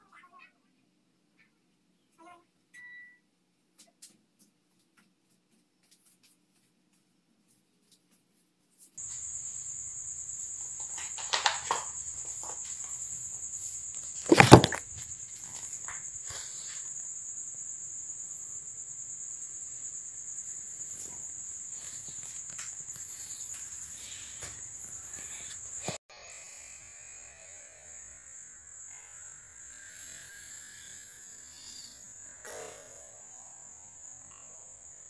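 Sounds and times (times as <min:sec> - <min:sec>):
crickets chirring: 0:09.0 - 0:26.0, 0:27.9 - 0:35.0
loud thump: 0:14.3 - 0:14.8.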